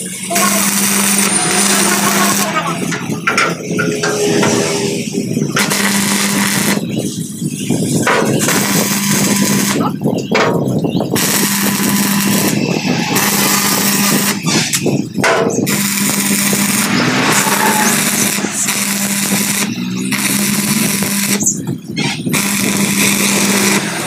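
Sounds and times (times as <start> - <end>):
welding arc crackling: 0.0 - 24.0.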